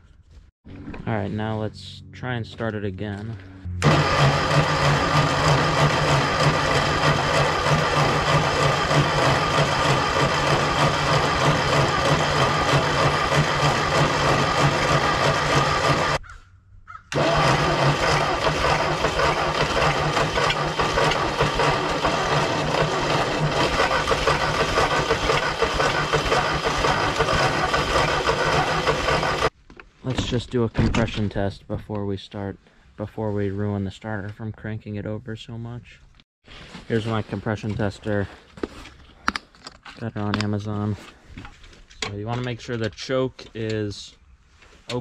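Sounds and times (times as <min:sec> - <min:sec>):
tractor engine cranking over: 0:03.8 - 0:16.2, 0:17.1 - 0:29.5.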